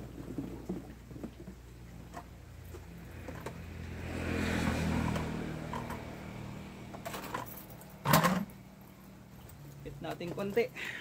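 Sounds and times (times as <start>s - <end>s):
vehicle engine passing by: 2.5s - 8.8s.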